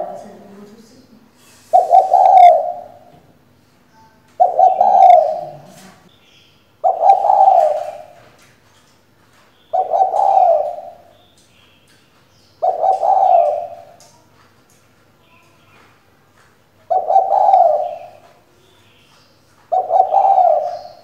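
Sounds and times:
dove cooing: 0.0s - 0.4s, 1.6s - 3.2s, 4.4s - 6.0s, 6.8s - 8.4s, 9.7s - 11.2s, 12.6s - 14.2s, 16.8s - 18.8s, 19.6s - 21.0s.

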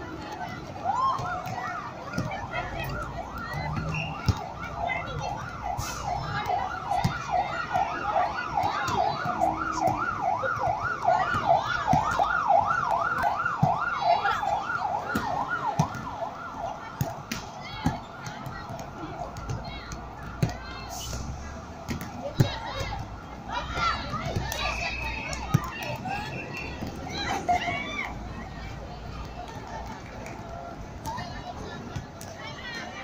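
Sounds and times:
siren yelping: 0.8s - 20.4s.

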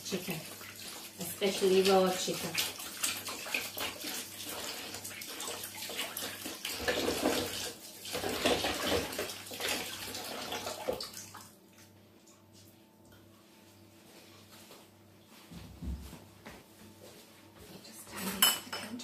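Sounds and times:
tap water running into sink: 0.1s - 11.4s.

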